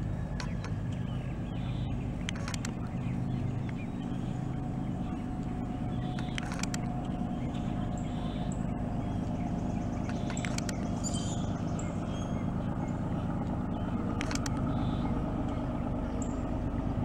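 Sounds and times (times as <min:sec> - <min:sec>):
low engine drone: 0:00.0 - 0:17.0.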